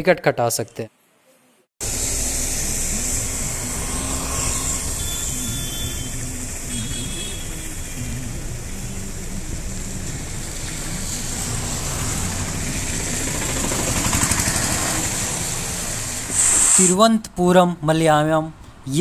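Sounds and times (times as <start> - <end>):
low engine rumble of traffic: 1.8 - 16.8.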